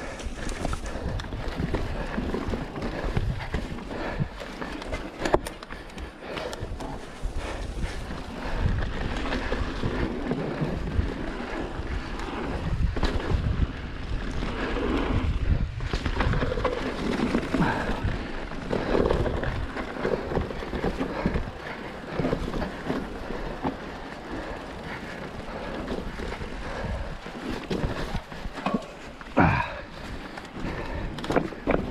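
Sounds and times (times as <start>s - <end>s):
wind rushing over microphone: 0.0s - 21.6s
bike knocks and rattles: 0.0s - 31.9s.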